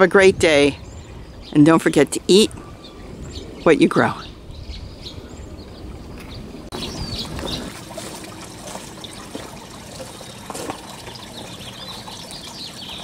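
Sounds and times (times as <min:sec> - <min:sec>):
small birds chirping: 0:00.0 - 0:13.0
water trickling and splashing: 0:06.6 - 0:13.0.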